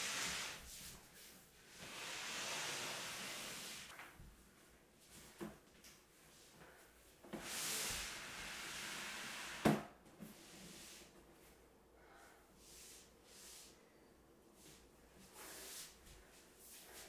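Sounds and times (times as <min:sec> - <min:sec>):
shelf scraping across floor: 0:01.7 - 0:03.9.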